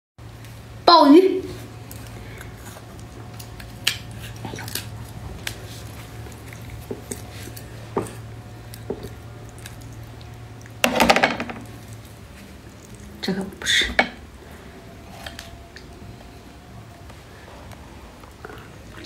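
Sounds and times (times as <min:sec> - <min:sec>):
low steady hum: 0:00.2 - 0:19.0
wet squishing of shellfish: 0:01.7 - 0:10.8, 0:11.7 - 0:13.2.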